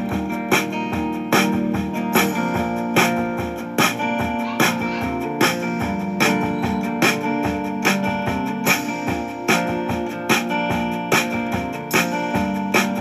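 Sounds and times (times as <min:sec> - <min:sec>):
guitar and keyboard music: 0:00.0 - 0:13.0.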